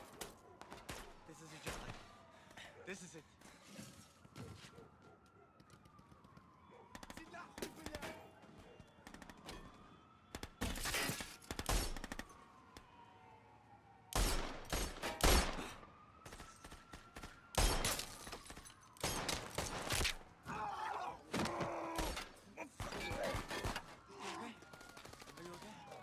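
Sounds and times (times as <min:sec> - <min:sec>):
rapid handgun fire: 0:14.2 - 0:15.6.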